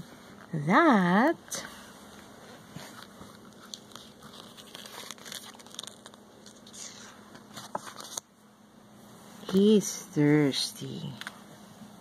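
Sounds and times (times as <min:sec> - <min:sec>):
book pages rustling and turning: 0:01.7 - 0:08.3.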